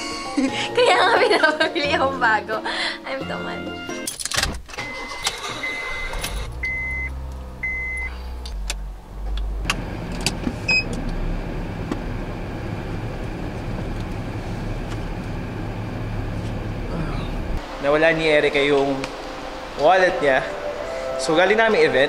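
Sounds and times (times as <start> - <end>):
car engine starting and idling: 4.1 - 22.0
dashboard beeps: 4.8 - 8.1, 10.7 - 10.9
ventilation noise: 8.8 - 22.0.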